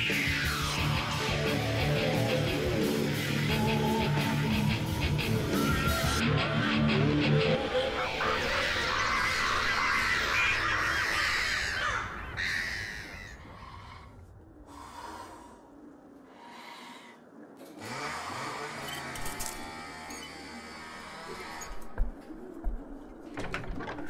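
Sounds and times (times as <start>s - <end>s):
flock of birds calling: 7.8s - 14.1s.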